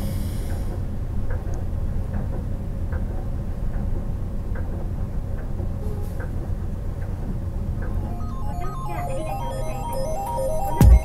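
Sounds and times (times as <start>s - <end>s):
faint hum: 7.9s - 11.0s.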